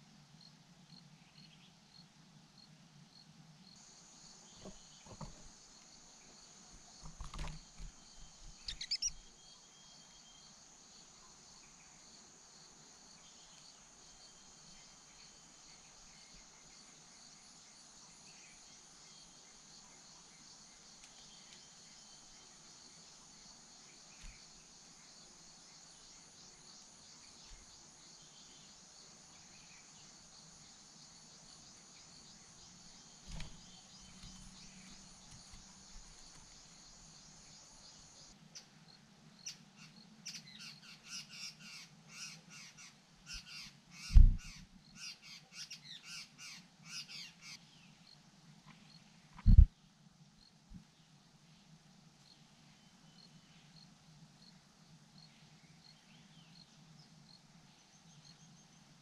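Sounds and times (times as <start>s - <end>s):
insect chorus: 0.0s - 59.0s
soft knock: 4.6s - 5.5s.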